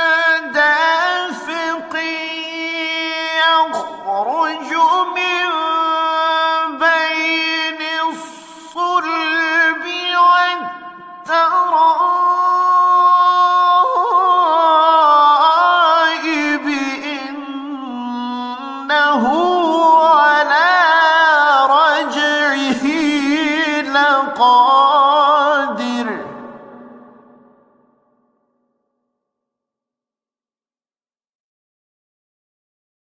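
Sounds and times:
man reciting melodically: 0:00.0 - 0:27.6.

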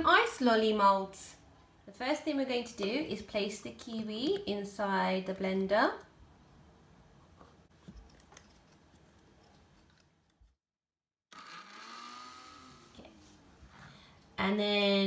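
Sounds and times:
blender motor humming: 0:11.3 - 0:13.1.

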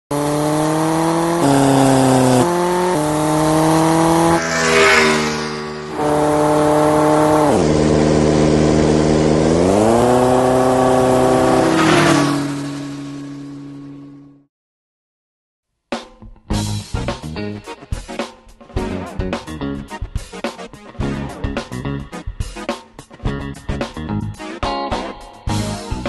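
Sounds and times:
motorcycle engine droning: 0:00.1 - 0:14.5
whoosh: 0:04.2 - 0:06.7.

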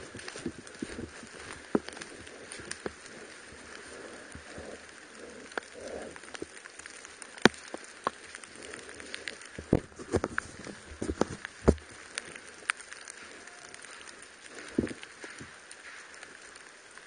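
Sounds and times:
footsteps in leaf litter: 0:00.0 - 0:05.9
twig cracking: 0:00.0 - 0:17.0.

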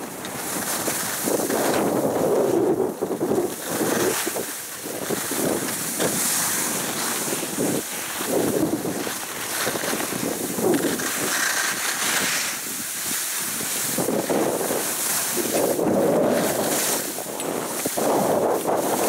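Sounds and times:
skis scraping on packed snow: 0:00.0 - 0:19.0
wind buffeting microphone: 0:00.0 - 0:19.0.

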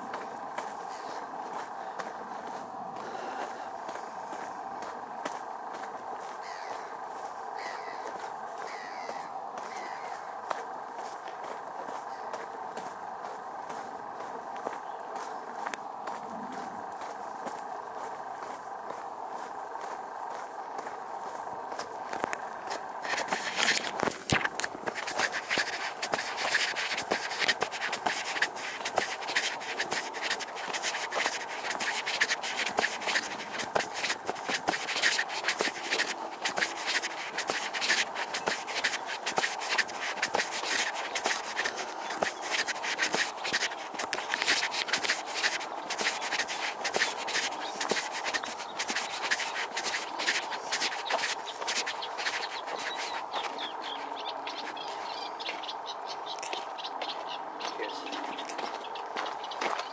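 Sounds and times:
footsteps on gravel path: 0:00.0 - 0:59.9.

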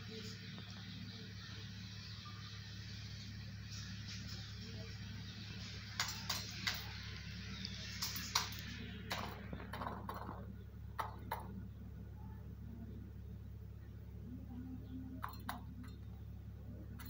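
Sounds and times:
steady low hum: 0:00.0 - 0:17.0
beak tapping steel bowl: 0:15.2 - 0:16.0.

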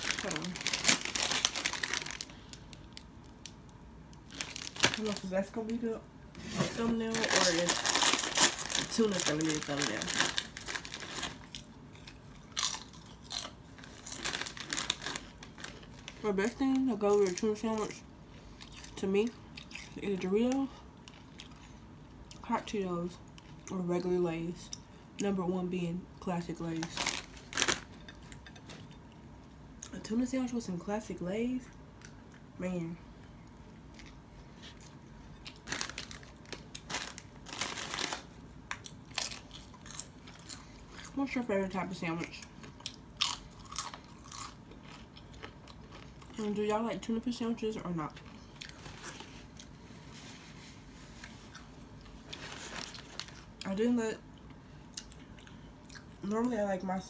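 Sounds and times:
chips being chewed: 0:07.4 - 0:16.2, 0:33.9 - 0:41.2, 0:42.6 - 0:46.4.

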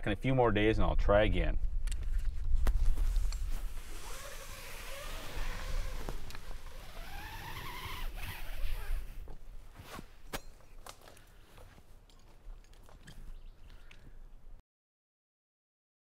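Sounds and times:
low wind rumble: 0:00.5 - 0:09.7.

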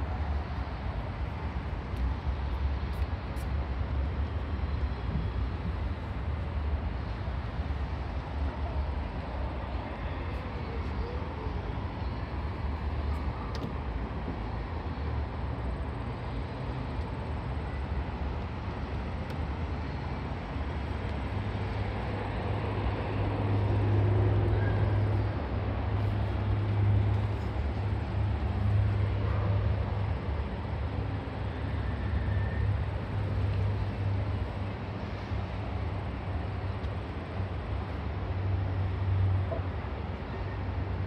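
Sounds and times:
low city rumble: 0:00.0 - 0:41.0.

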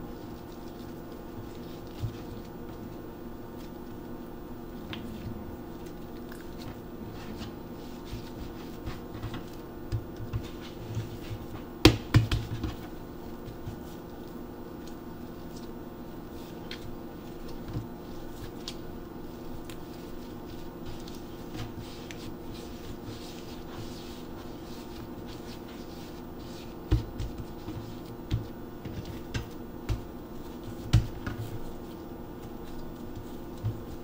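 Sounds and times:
hands squishing bread dough: 0:00.0 - 0:34.0
steady low hum: 0:00.0 - 0:34.0
dough ball thumping on board: 0:11.8 - 0:12.9, 0:30.8 - 0:31.4.

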